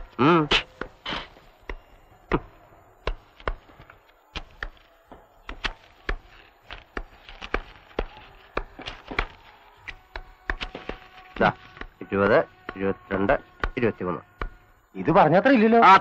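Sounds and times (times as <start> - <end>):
cleaver chopping meat on wood: 0.5 - 3.7, 5.4 - 11.0, 13.5 - 14.6.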